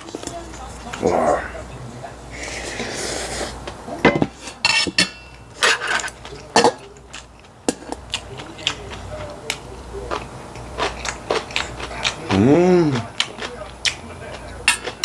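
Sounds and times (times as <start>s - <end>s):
metal utensils clinking on steel bowl: 4.0s - 7.0s, 14.6s - 15.0s.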